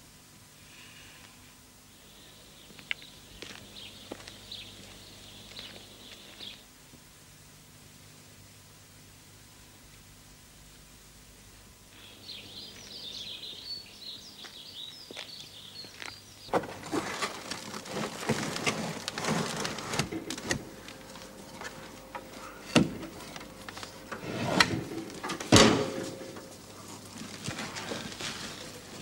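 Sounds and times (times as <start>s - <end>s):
birds chirping: 1.9s - 6.6s, 12.0s - 16.6s
wooden boards scraping and knocking: 16.5s - 29.0s.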